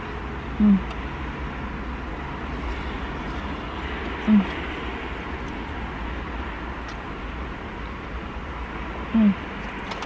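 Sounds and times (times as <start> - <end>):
low rumble inside a car: 0.0 - 9.9
person humming mm: 0.6 - 0.9, 4.3 - 4.6, 9.1 - 9.4.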